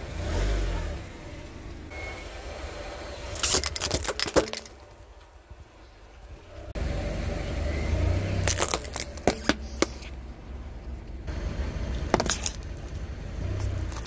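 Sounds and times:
plastic cracking under a tyre: 3.3 - 5.3, 8.4 - 10.2, 12.1 - 13.0, 13.6 - 14.0.

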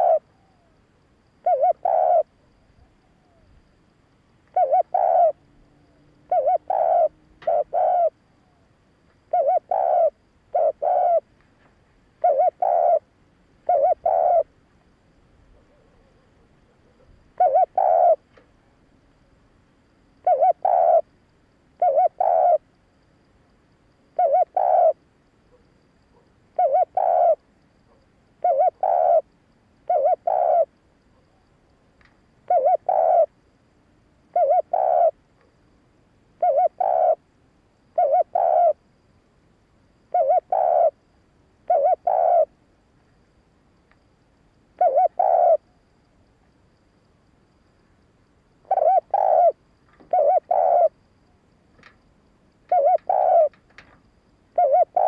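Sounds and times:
dove cooing: 0.0 - 0.8, 1.4 - 3.4, 4.5 - 5.5, 6.3 - 8.6, 9.3 - 11.3, 12.2 - 14.5, 15.5 - 18.2, 20.2 - 21.1, 21.8 - 22.6, 24.2 - 29.3, 29.9 - 30.7, 32.5 - 33.3, 34.3 - 35.2, 36.4 - 37.2, 38.0 - 38.8, 40.1 - 41.0, 41.7 - 42.5, 44.8 - 45.7, 48.6 - 51.0, 52.7 - 53.9, 54.6 - 55.0.

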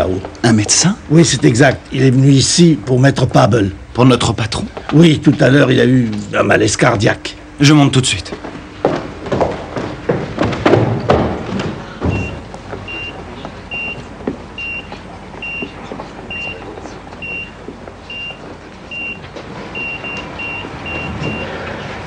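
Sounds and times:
footsteps on staircase: 4.7 - 5.7, 8.2 - 22.0
heart monitor beeping: 11.9 - 21.9.

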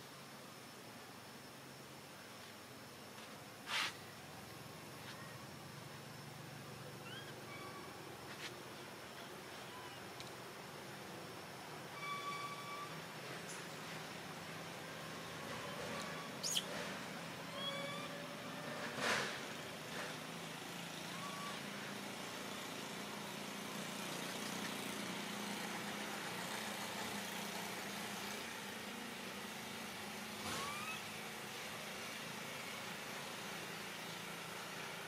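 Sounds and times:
outdoor background noise: 0.0 - 35.0
faint rising chirps: 6.6 - 8.4.

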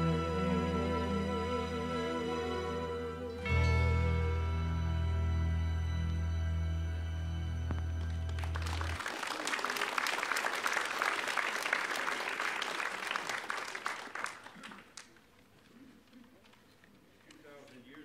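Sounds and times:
held music chord: 0.0 - 9.0
congregation applauding: 7.7 - 16.6.

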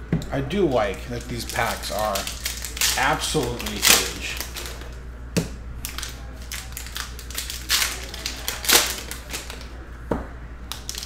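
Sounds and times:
foil wrappers crinkling: 0.7 - 5.0, 5.8 - 9.8, 10.7 - 11.0.

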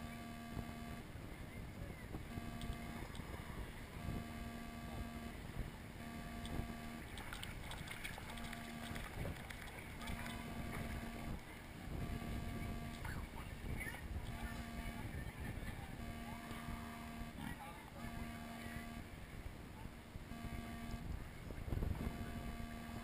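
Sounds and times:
low buzzy electronic beep: 0.0 - 1.1, 2.2 - 9.4, 10.0 - 19.1, 20.3 - 21.2, 21.8 - 23.0
small splashes: 7.0 - 11.0
water sloshing and lapping: 7.1 - 11.1.

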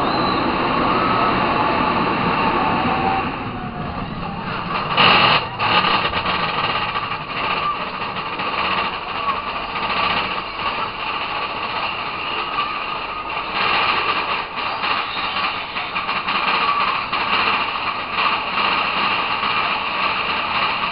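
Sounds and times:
roller coaster rush: 0.0 - 20.9
roller coaster wheels rumbling on rail: 0.0 - 20.9.

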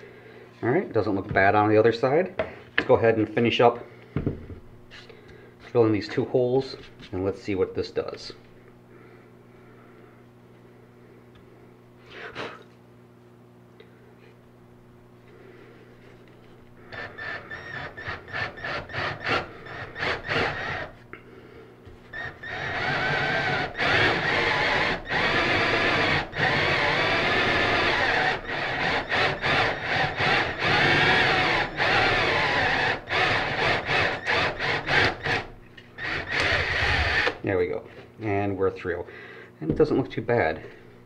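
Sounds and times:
power drill boring into wood: 16.9 - 21.0, 22.1 - 37.4.

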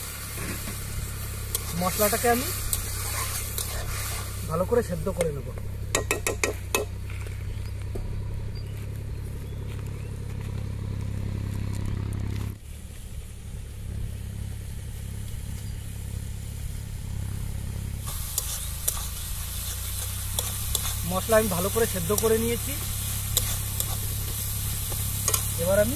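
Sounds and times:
masala sizzling in a pan: 0.0 - 7.4, 12.6 - 25.9
steady low hum: 0.0 - 25.9.

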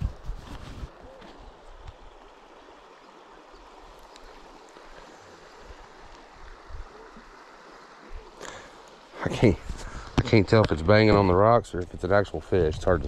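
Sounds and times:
river water flowing: 0.0 - 13.0
faint clicks: 4.0 - 5.1.

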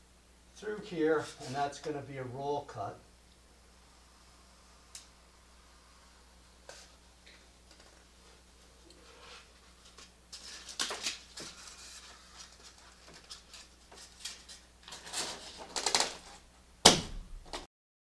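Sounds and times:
foam panels rubbing and squeaking: 10.4 - 16.4.

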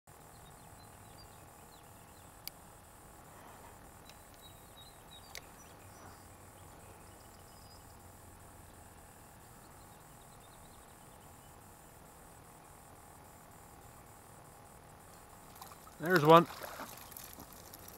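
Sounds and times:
faint bird chirps: 0.1 - 2.5, 4.0 - 11.9
steady outdoor hiss: 0.1 - 17.9.

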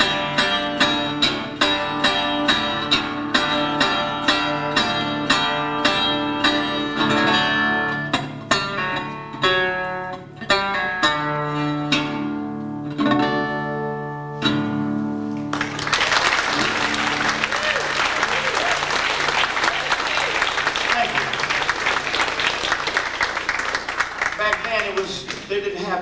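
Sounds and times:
acoustic blues guitar: 0.0 - 23.2
audience applause: 15.2 - 25.7.

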